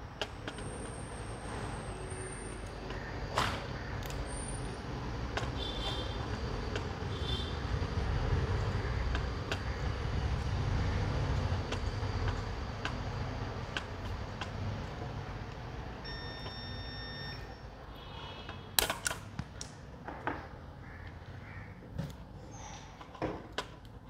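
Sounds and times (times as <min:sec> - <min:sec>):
tape clicks and crackles: 0:00.1 - 0:01.0, 0:05.3 - 0:05.6, 0:06.2 - 0:07.0, 0:08.5 - 0:09.7, 0:11.2 - 0:15.7, 0:18.5 - 0:20.4, 0:23.0 - 0:24.0.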